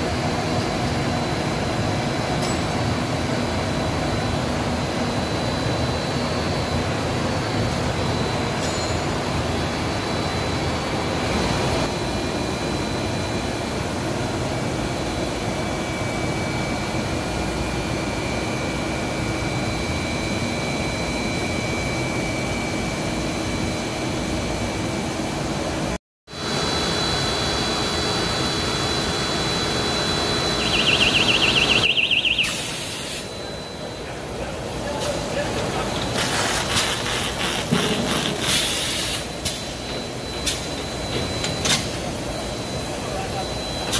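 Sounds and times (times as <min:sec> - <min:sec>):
industrial machine noise: 0:00.0 - 0:43.9
faint high whines: 0:26.4 - 0:35.8.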